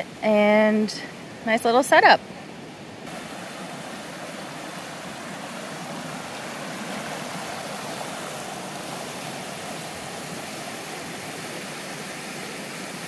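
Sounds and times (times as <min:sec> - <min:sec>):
river rushing: 0:02.2 - 0:13.0.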